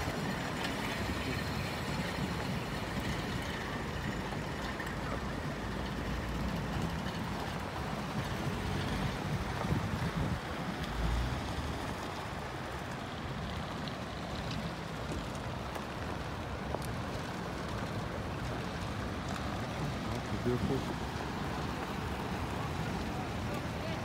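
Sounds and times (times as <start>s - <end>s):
cars driving on gravel: 0.0s - 24.0s
wind on microphone: 7.6s - 12.4s.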